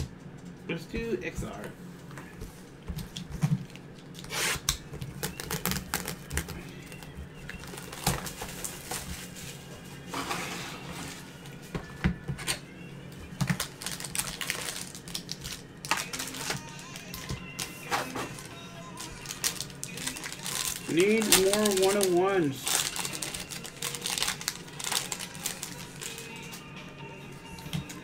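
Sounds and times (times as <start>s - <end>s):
cardboard and wrapper crinkling: 5.0s - 11.2s, 13.5s - 26.6s.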